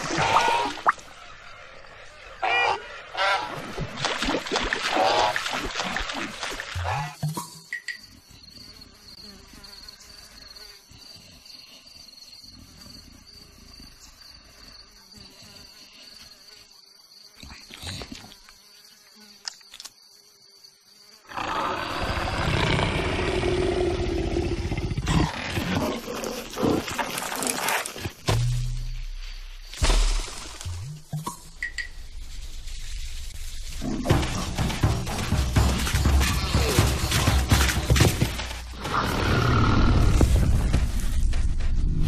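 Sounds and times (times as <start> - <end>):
insect chirr: 0.0 - 42.0
leopard growling: 21.3 - 27.8, 33.7 - 40.7.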